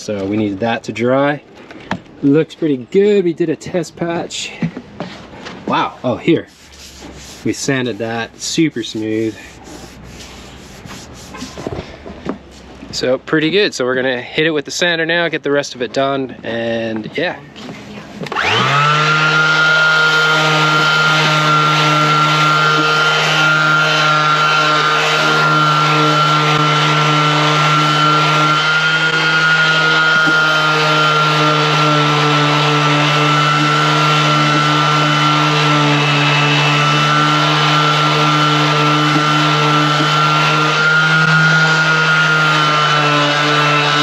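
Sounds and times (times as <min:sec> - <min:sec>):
orbital sander running: 0:06.5 - 0:11.7, 0:18.3 - 0:44.0.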